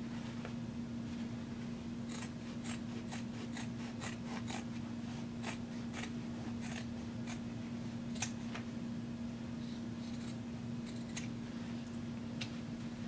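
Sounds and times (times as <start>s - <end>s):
steady low hum: 0.0s - 13.0s
scissors snipping fabric: 2.1s - 4.8s, 5.4s - 7.4s, 8.1s - 8.4s, 10.0s - 11.3s.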